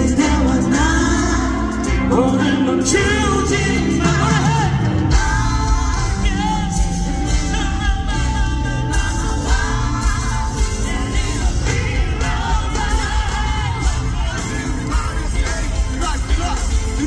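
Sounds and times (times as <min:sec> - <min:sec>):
man singing: 0:00.0 - 0:17.0
pop song over sound system: 0:00.0 - 0:17.0.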